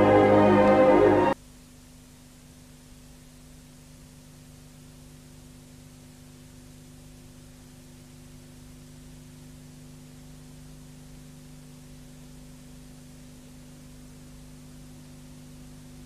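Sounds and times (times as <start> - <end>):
low steady hum: 0.0 - 16.0
tape hiss: 0.0 - 16.0.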